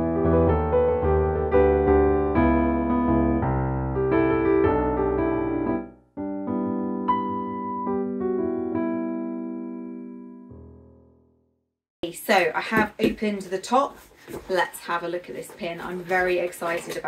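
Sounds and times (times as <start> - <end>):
solo piano music: 0.0 - 11.5.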